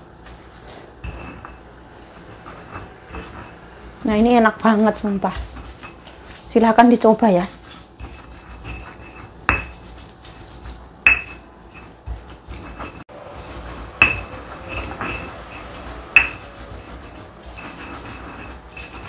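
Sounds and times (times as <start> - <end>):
pestle grinding in mortar: 0.6 - 19.0
stone knocking on stone: 11.1 - 11.4, 14.0 - 15.2, 16.2 - 16.4.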